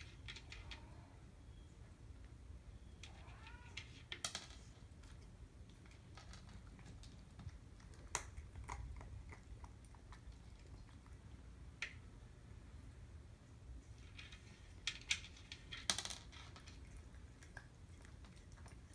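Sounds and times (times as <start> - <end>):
cat crunching kibble: 5.0 - 11.5, 14.7 - 18.9.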